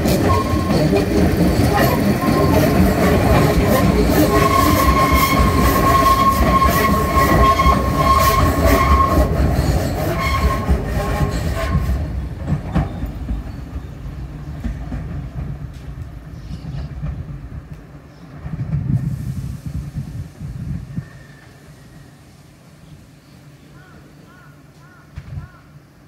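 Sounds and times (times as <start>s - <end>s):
train wheels squealing: 0.0s - 14.1s, 20.9s - 22.3s
train rumble: 0.0s - 26.0s.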